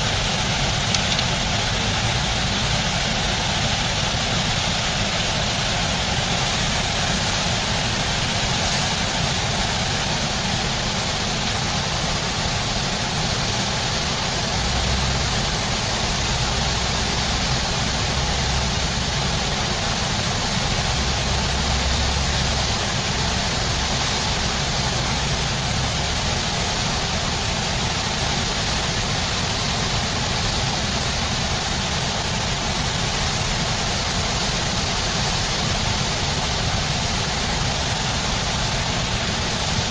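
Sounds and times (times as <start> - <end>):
river rapids roaring: 0.0 - 39.9
low rumbling: 13.8 - 30.1.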